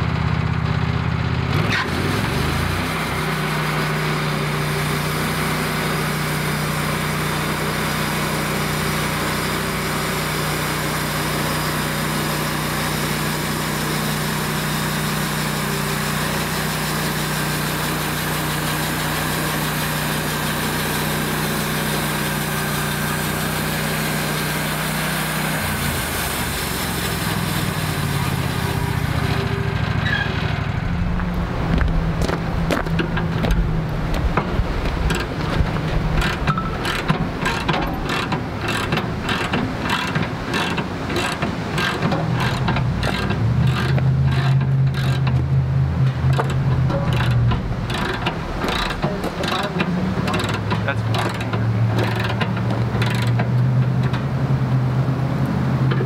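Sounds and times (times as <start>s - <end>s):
sawmill engine running: 0.0s - 56.0s
band blade cutting wood: 34.9s - 45.5s.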